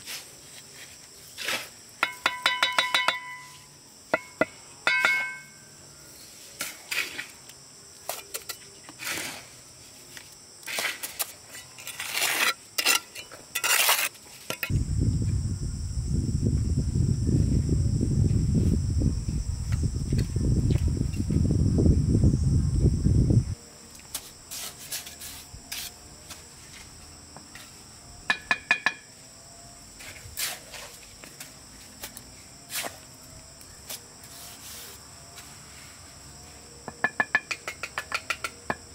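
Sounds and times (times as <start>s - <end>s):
insects buzzing: 0.0s - 38.9s
clinks and taps of hard objects: 2.0s - 3.5s, 4.1s - 5.5s, 36.9s - 38.8s.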